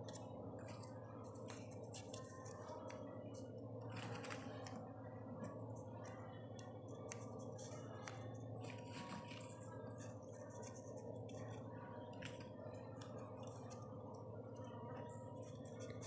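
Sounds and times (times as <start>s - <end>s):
paper rustling and clicking: 0.0s - 3.1s, 3.9s - 4.8s, 7.0s - 13.9s
steady low hum: 0.0s - 16.0s.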